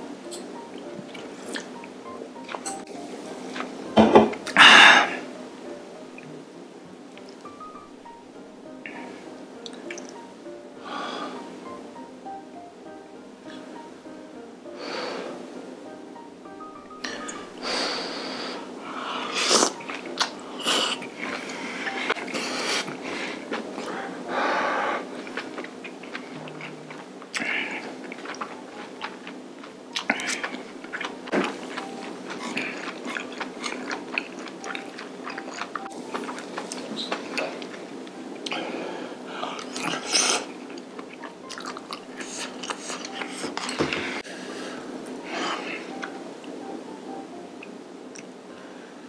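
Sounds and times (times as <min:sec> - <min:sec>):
chewing and smacking: 0:19.6 - 0:24.0, 0:25.2 - 0:38.6, 0:39.4 - 0:43.9.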